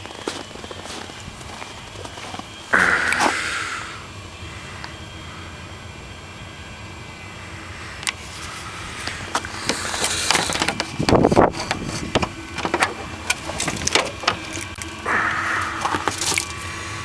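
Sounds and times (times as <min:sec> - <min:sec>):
frozen snow crunching: 0:00.0 - 0:03.9, 0:08.2 - 0:12.1, 0:13.0 - 0:17.0.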